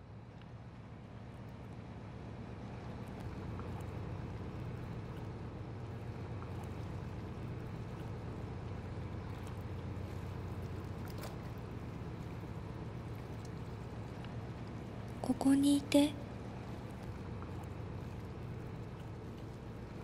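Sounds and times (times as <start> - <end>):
underwater rumble of moving water: 0.0 - 20.0
faint clicks: 13.3 - 14.4.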